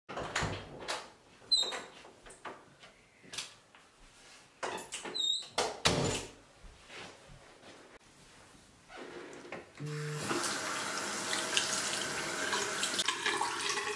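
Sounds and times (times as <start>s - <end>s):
door opening and shutting: 0.1s - 2.0s, 4.6s - 6.4s.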